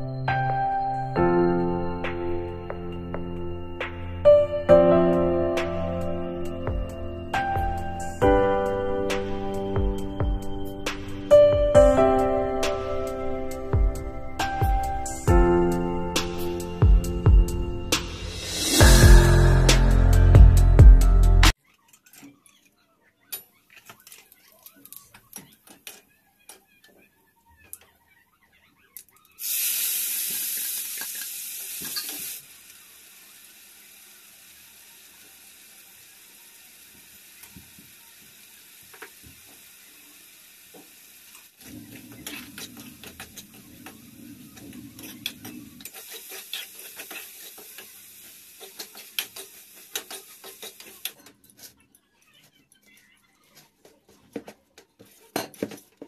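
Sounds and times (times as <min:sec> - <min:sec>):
food sizzling in hot oil: 0:29.4 - 0:51.1
metal spatula scraping and stirring: 0:41.9 - 0:47.9, 0:48.6 - 0:51.8
metal utensils clinking: 0:42.0 - 0:51.8.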